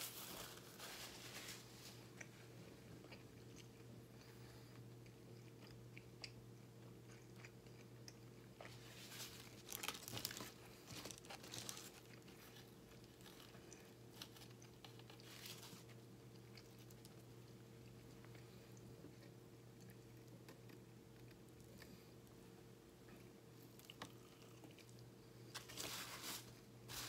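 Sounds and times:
foil wrapper crackling: 0.0 - 1.8, 8.9 - 15.9
steady low hum: 0.0 - 27.0.

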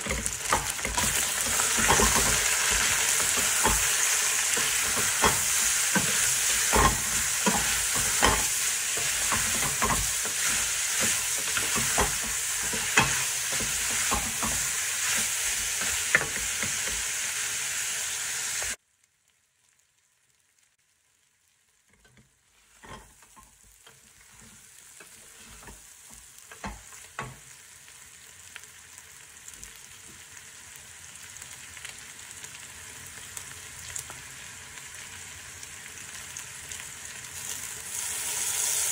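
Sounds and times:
meat and onions sizzling: 0.0 - 38.9
wooden spatula knocking pot: 0.1 - 15.3.

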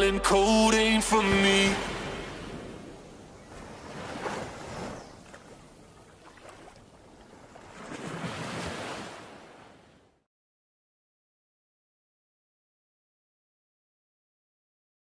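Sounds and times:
waves washing onto sand: 1.4 - 9.8.

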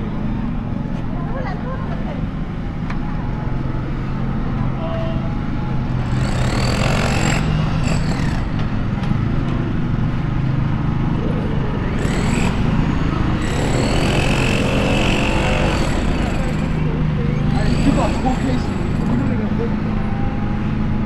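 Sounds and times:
distant traffic rumble: 0.0 - 21.0.

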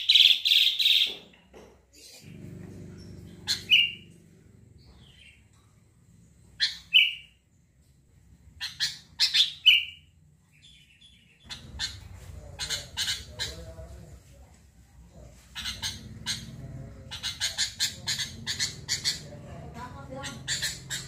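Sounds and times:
bird chirping and whistling: 3.5 - 4.0, 6.6 - 7.4, 8.6 - 10.0.

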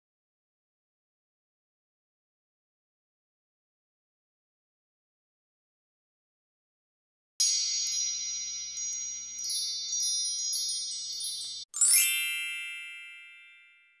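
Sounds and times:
loud ringing chime: 7.4 - 14.0
tinkling chime jingle: 7.4 - 14.0.

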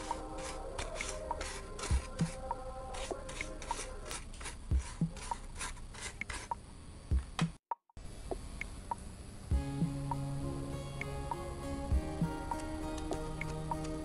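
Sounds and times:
quiet music with soft beat: 0.0 - 5.5, 6.4 - 7.6, 8.3 - 14.0
paintbrush scratching on plastic: 0.0 - 6.6.

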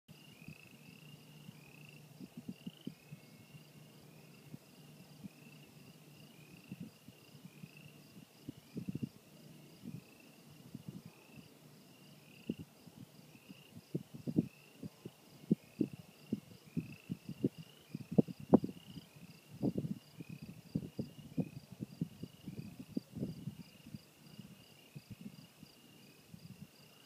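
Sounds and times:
frogs and crickets chirping: 0.1 - 27.0
wind buffeting microphone: 2.1 - 3.4, 6.6 - 11.5, 12.4 - 26.8.

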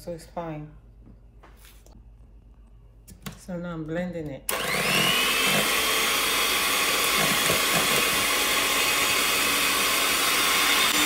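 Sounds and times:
electric hand mixer whisking: 4.5 - 11.0.

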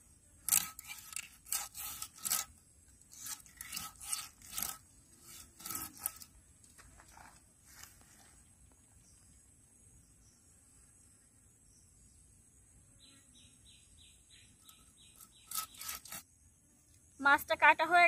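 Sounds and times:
blade scraping fish: 0.4 - 6.3, 15.2 - 16.2.

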